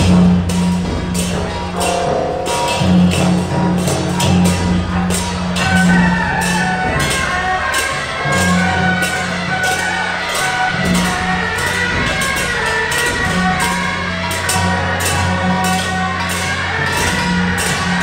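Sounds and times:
steady low drone tones: 0.0 - 9.5
loud percussion: 0.0 - 18.0
high melody line: 1.8 - 4.0.

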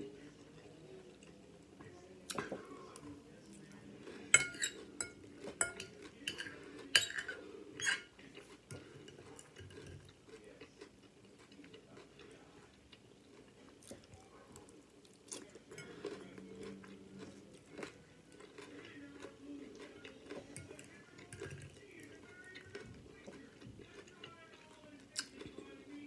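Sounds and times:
cutlery clinking against a dish: 4.3 - 10.4, 15.3 - 25.7.

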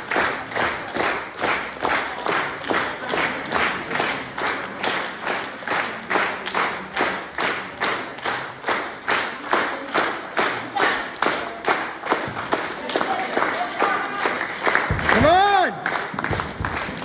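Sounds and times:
group clapping in rhythm: 0.0 - 17.0.

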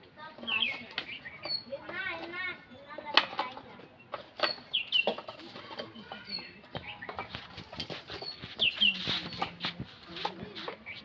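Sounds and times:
stick knocking on loose bricks: 4.2 - 10.9.

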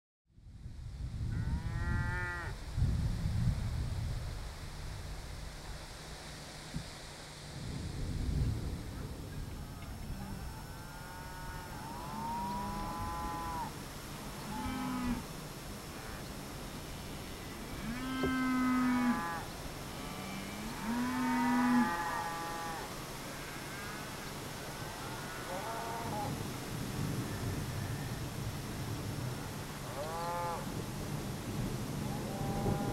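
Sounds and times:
cattle mooing: 17.8 - 22.9, 29.9 - 30.7.

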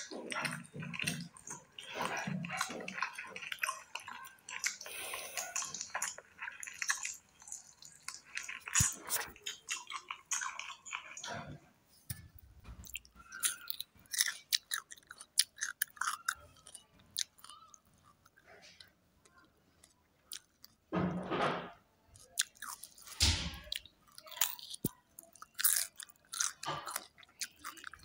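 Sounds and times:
wet chewing mouth sounds: 0.0 - 11.5, 12.8 - 20.8, 22.2 - 28.0
crunching bites of cucumber: 22.2 - 28.0.

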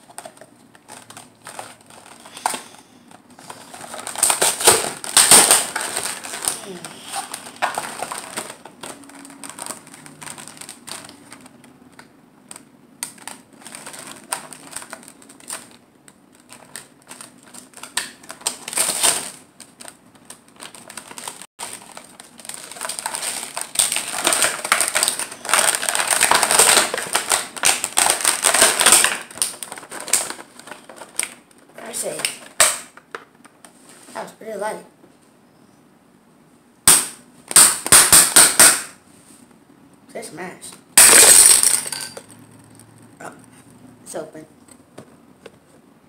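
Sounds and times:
plastic blister packaging crackling: 0.0 - 33.6.

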